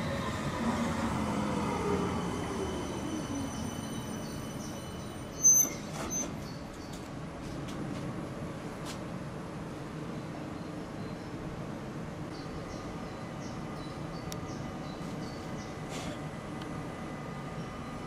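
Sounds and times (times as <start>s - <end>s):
tram motors whining: 0.0s - 6.8s
high-pitched brake squeal: 1.4s - 6.6s.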